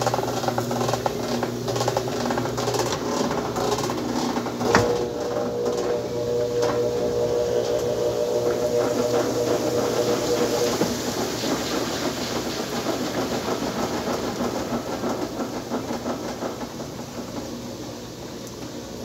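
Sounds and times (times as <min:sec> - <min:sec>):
washing machine spinning: 0:00.0 - 0:19.0
humming tone: 0:04.6 - 0:11.6.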